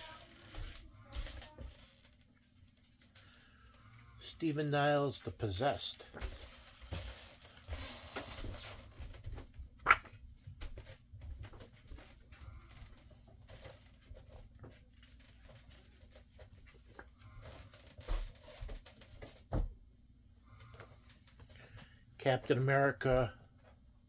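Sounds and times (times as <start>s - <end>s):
paper and plastic rustling: 6.0s - 19.4s.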